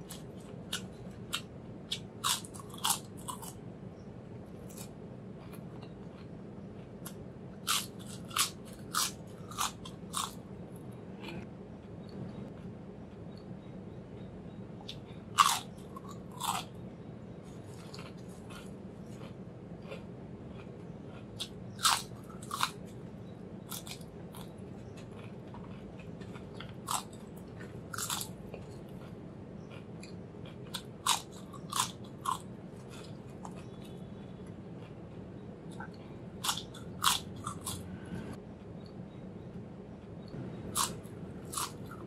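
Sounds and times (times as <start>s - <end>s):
potato chips crunching: 0.0s - 3.6s, 4.6s - 10.4s, 14.9s - 16.7s, 17.6s - 22.8s, 23.7s - 29.1s, 29.7s - 34.0s, 35.7s - 37.8s, 40.7s - 42.0s
chewing crackles: 0.0s - 3.7s, 4.5s - 13.6s, 14.2s - 42.0s.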